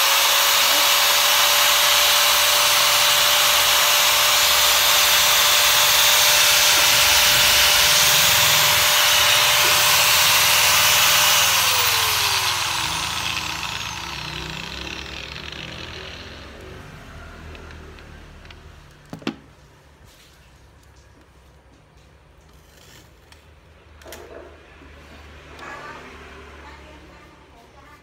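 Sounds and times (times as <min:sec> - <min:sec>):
angle grinder whining: 0:00.0 - 0:18.8
grinder winding down: 0:00.0 - 0:19.0.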